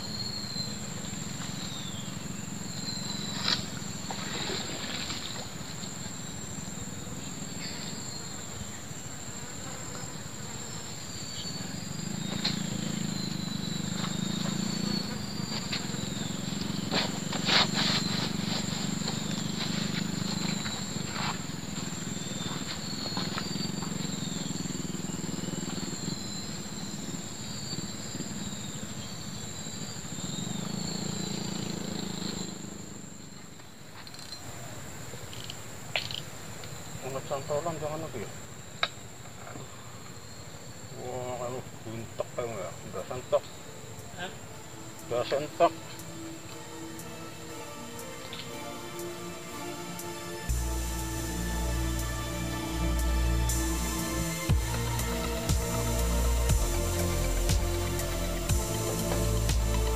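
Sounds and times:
bird chirps: 0.0s - 32.6s
insect drone: 0.0s - 59.9s
low drone: 43.4s - 59.9s.

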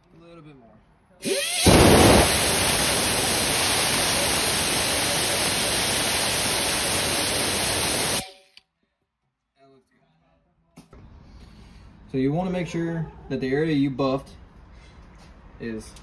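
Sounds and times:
tire buffing tool rushing: 1.2s - 8.2s.

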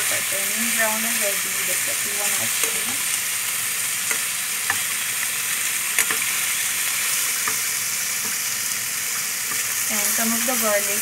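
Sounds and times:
meat sizzling in a pan: 0.0s - 11.0s.

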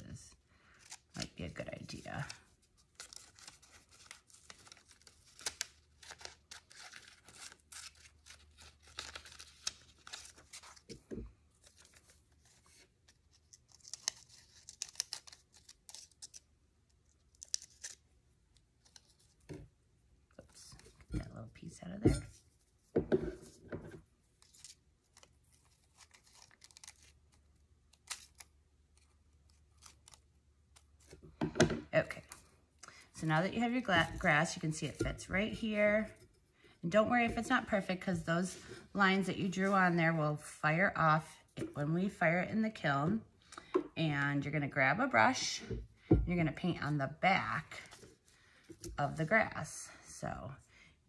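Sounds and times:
paper rustling: 0.7s - 16.4s, 23.4s - 31.2s
person's voice: 1.2s - 2.4s, 33.2s - 36.2s, 36.8s - 43.2s, 44.0s - 47.9s.

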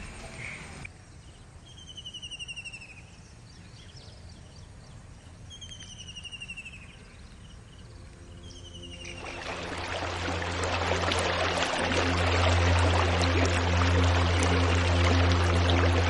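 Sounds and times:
low steady background hiss: 0.0s - 16.0s.

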